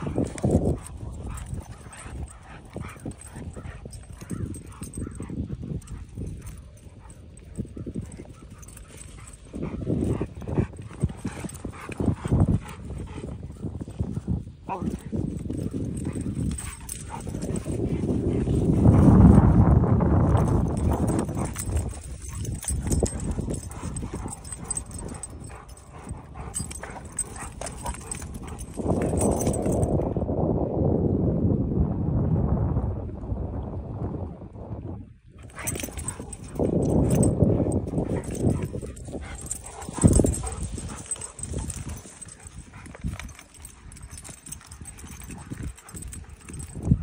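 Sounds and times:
dogs scuffling on grass: 0:35.5 - 0:46.8.

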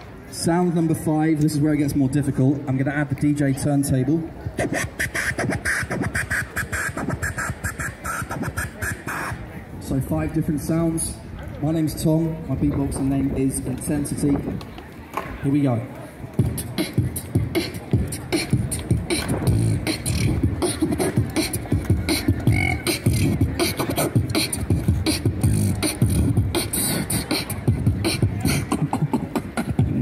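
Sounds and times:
person beatboxing: 0:04.4 - 0:09.6, 0:16.4 - 0:30.0.

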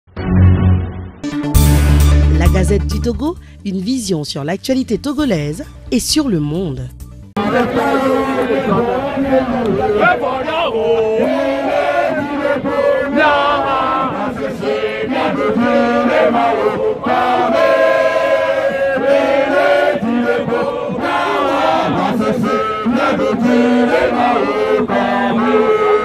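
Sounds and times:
crowd chanting and singing: 0:07.4 - 0:26.0.

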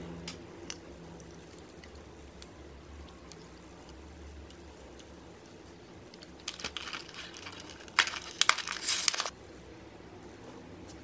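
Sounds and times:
plastic packaging crinkling: 0:06.2 - 0:09.3.

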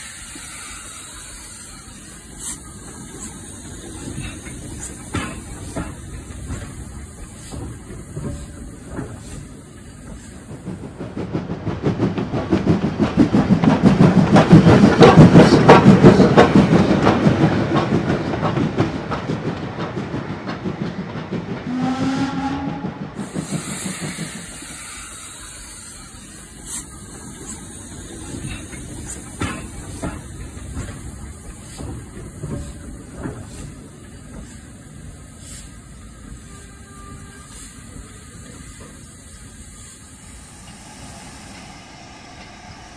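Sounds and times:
model train wheels clicking: 0:23.2 - 0:41.7.

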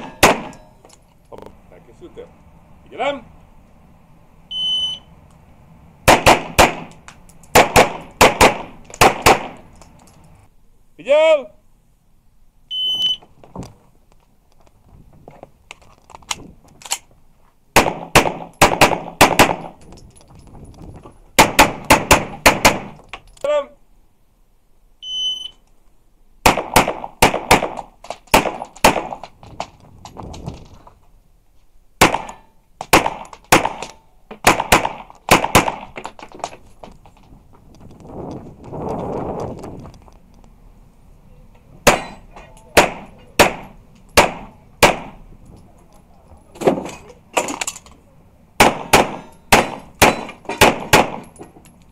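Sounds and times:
handgun shots echoing: 0:00.0 - 0:00.8, 0:26.5 - 0:29.3, 0:32.0 - 0:36.1, 0:41.8 - 0:45.2, 0:48.6 - 0:51.4
shot timer beep: 0:04.5 - 0:05.1, 0:12.7 - 0:13.2, 0:25.0 - 0:25.6.

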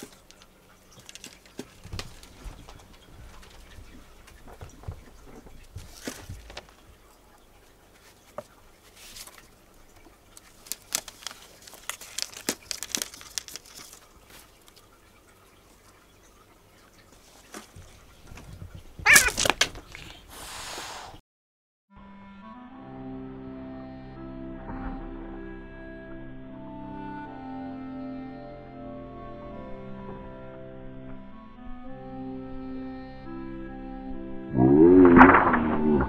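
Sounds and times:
cats scuffling: 0:00.0 - 0:14.9, 0:17.1 - 0:20.2
cat claws scratching cardboard: 0:10.4 - 0:14.0.

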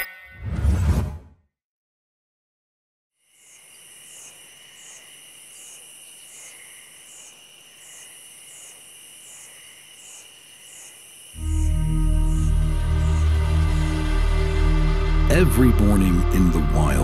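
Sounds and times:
insect trilling and chirping: 0:03.2 - 0:14.7.

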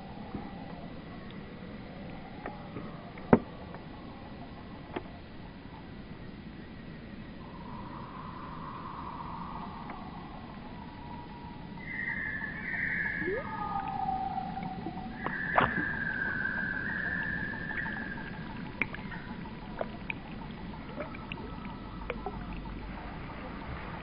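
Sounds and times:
faint ticks: 0:00.1 - 0:06.0, 0:09.6 - 0:10.2, 0:12.6 - 0:23.4
slowed bird song whistles: 0:07.4 - 0:22.4.

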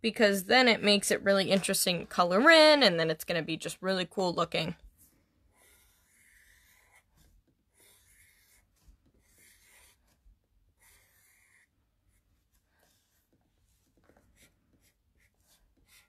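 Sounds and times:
marker scratching on paper: 0:04.4 - 0:16.0.

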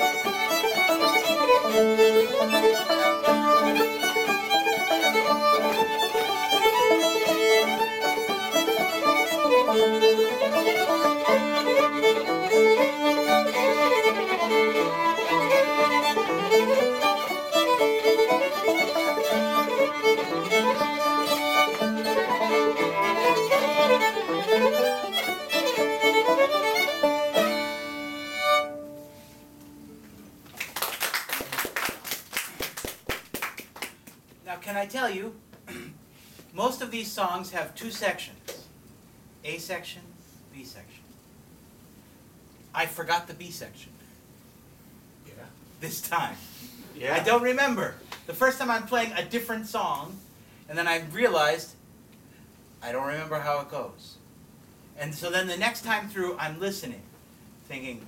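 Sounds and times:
bowed fiddle melody: 0:00.0 - 0:29.8.

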